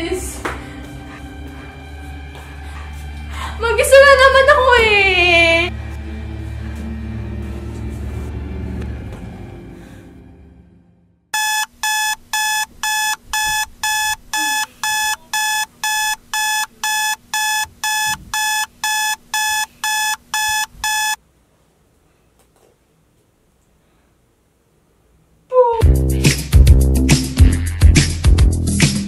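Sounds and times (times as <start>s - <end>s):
phone alarm beeping: 11.4s - 21.2s.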